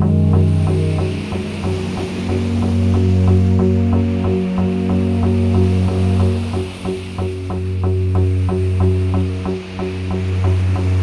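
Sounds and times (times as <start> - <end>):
pulsing drone music: 0.0 - 11.0
tape hiss: 0.0 - 11.0.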